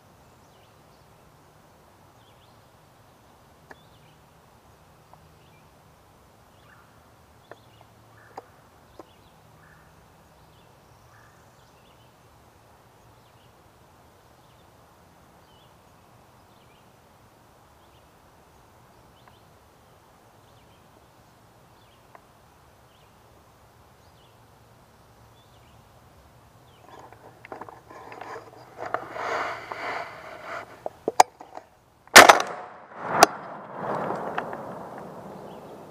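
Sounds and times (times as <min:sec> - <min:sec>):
songbird chirps: 0:00.0 - 0:32.0, 0:34.5 - 0:35.9
sharp clicks: 0:32.2 - 0:35.1.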